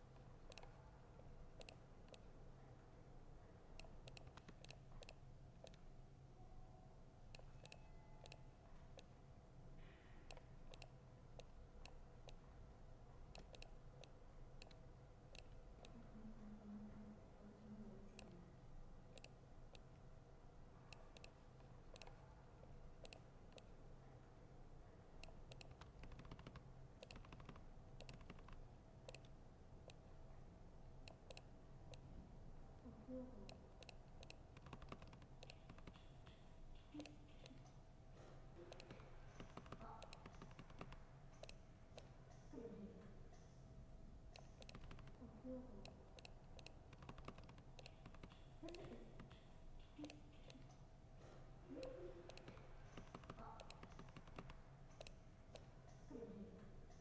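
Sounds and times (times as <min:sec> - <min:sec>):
low room hum: 0:00.0 - 0:57.0
typing on laptop keyboard: 0:25.2 - 0:29.3, 0:33.5 - 0:37.6, 0:38.7 - 0:42.1, 0:44.4 - 0:45.2, 0:45.9 - 0:50.6, 0:51.8 - 0:55.7.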